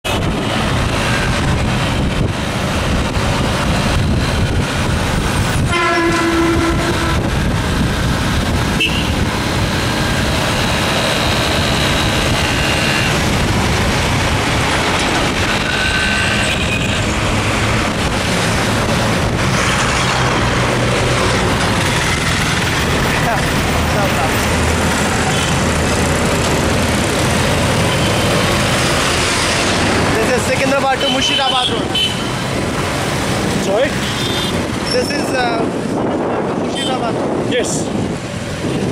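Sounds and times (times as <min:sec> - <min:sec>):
wind and road noise: 0:00.0 - 0:38.9
vehicle horns: 0:05.6 - 0:07.5, 0:08.7 - 0:09.3, 0:11.4 - 0:13.3, 0:15.7 - 0:17.2, 0:25.2 - 0:25.7, 0:27.8 - 0:28.6, 0:30.9 - 0:32.5, 0:33.9 - 0:35.0.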